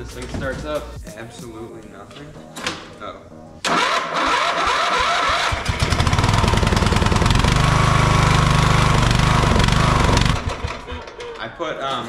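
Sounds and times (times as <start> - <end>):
electric starter cranking: 3.6 - 11.5
mower engine running: 3.7 - 11.3.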